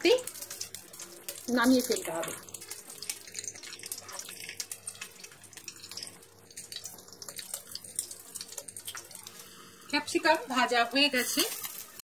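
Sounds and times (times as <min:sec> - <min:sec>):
peppers sizzling in oil: 0:00.0 - 0:12.0.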